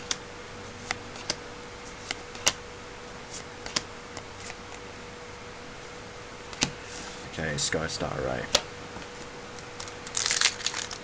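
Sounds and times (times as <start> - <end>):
faint steady hum: 0.0 - 11.0
playing cards snapping: 2.1 - 2.6, 3.6 - 4.6.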